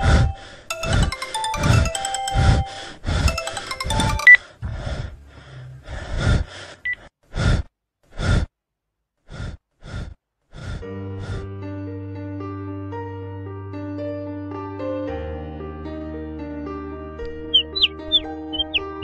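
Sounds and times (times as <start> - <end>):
soft keyboard music: 0.0 - 4.6, 10.9 - 19.0
man gasping breaths: 4.5 - 8.5, 9.2 - 11.5.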